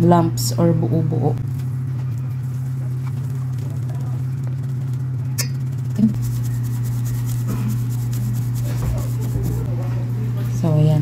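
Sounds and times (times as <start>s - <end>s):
steady low hum: 0.0s - 11.0s
flour sifting through mesh sieve: 2.4s - 10.0s.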